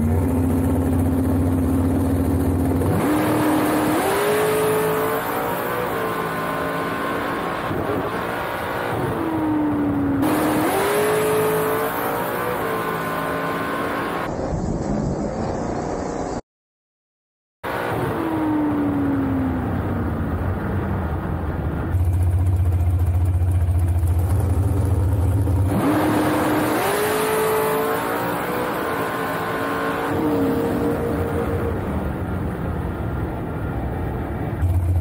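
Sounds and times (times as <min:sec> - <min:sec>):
dragster engine: 0:00.0 - 0:08.1, 0:19.8 - 0:35.0
engine whine: 0:00.0 - 0:16.4, 0:17.6 - 0:35.0.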